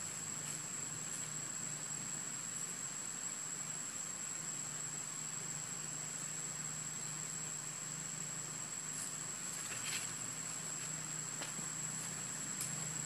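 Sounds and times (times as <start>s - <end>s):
animals rustling leaves: 8.9s - 13.0s.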